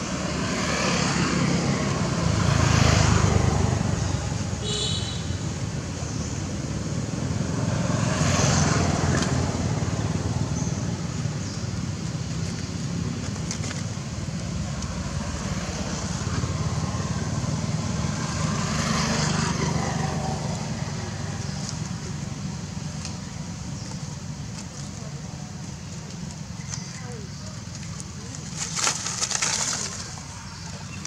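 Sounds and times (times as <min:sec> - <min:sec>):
distant road traffic rumble: 0:00.0 - 0:31.0.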